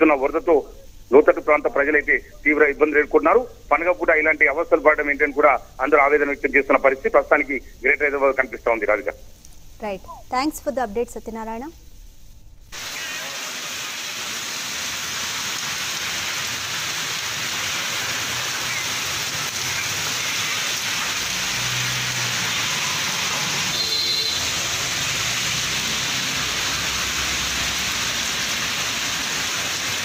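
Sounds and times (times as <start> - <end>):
heavy rain splashing on street: 12.8 - 30.0.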